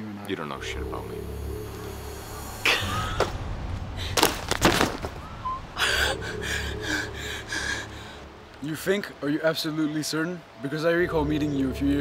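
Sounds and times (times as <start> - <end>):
low steady hum: 0.3 - 9.0.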